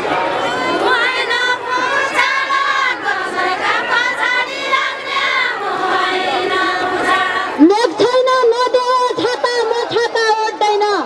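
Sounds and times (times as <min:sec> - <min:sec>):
crowd noise: 0:00.0 - 0:11.0
women singing together: 0:00.6 - 0:09.3.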